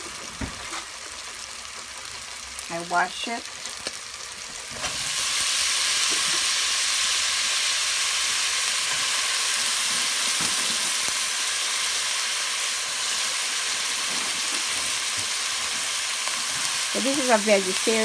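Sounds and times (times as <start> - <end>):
beans sizzling in hot oil: 0.0 - 18.0.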